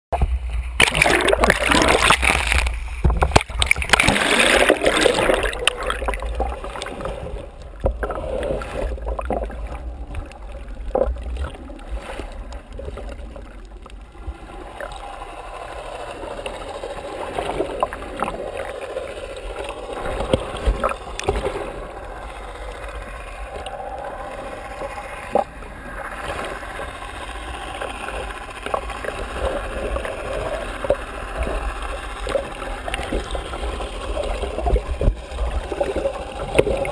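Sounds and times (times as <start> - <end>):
gurgling water: 0.1 - 36.9
muffled underwater rumble: 0.1 - 36.9
water splashing: 0.2 - 36.9.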